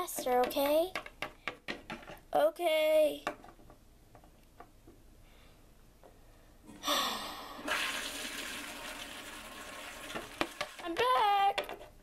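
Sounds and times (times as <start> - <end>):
toilet flushing: 7.3 - 10.9.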